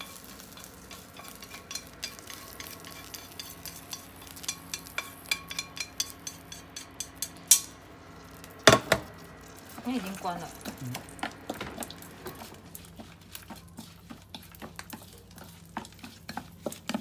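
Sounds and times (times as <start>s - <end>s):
chopsticks scraping a frying pan: 0.0s - 7.6s, 9.5s - 17.0s
pan knocking on metal bowl: 8.7s - 9.1s.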